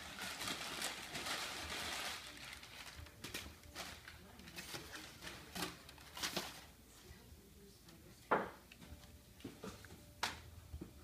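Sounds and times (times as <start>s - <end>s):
sharp paper crackle: 0.0s - 6.7s
packing paper rustling: 0.0s - 6.8s.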